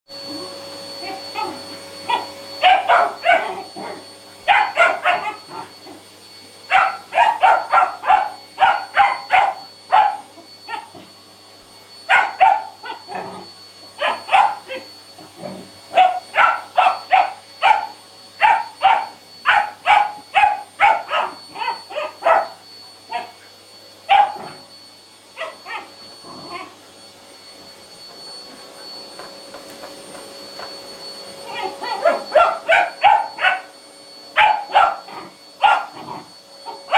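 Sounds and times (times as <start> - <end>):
puppy barking and yipping: 1.4 - 6.0, 6.7 - 11.0, 12.1 - 13.2, 14.0 - 14.9, 15.9 - 23.3, 24.1 - 24.6, 25.4 - 26.7, 31.4 - 33.7, 34.4 - 36.9.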